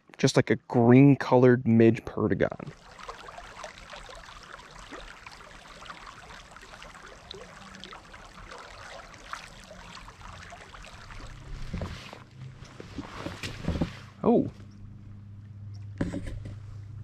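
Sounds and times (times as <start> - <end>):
river water babbling: 2.7 - 14.2.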